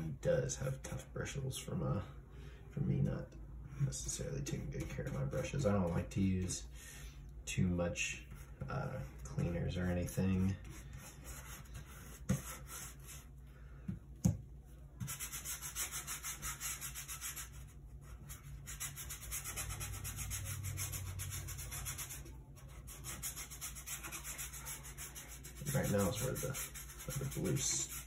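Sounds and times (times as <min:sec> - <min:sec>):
brush scrubbing paint on panel: 0:08.2 - 0:13.4, 0:15.0 - 0:28.0.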